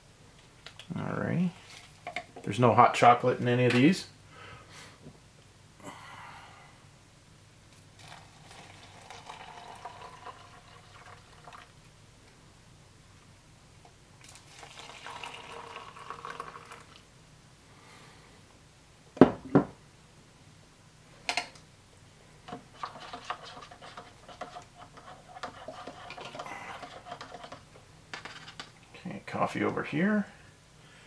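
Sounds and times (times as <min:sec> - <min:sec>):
water pouring into a cup: 0:08.0 - 0:11.7, 0:14.2 - 0:17.0.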